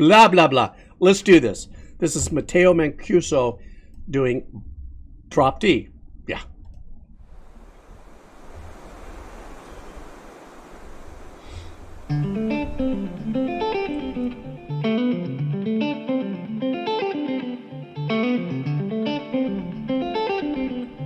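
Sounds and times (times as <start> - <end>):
soft rushing noise with rumble: 0.8 - 14.7
clean electric guitar with delay: 12.2 - 21.0.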